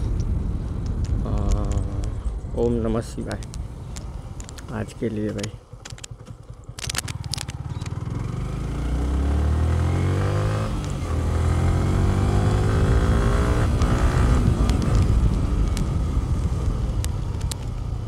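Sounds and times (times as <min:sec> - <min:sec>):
motorcycle engine revving: 0:05.3 - 0:18.0.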